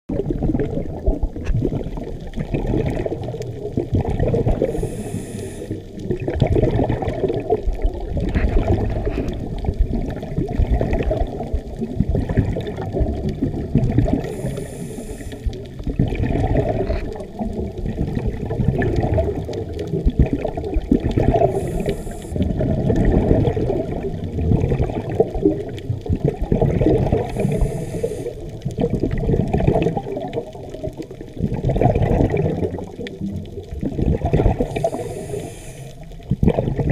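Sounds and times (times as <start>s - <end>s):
underwater exhaled bubbles: 0.1s - 36.9s
regulator inhalation hiss: 4.6s - 5.8s, 14.2s - 15.5s, 21.4s - 22.4s, 27.3s - 28.4s, 34.6s - 36.1s.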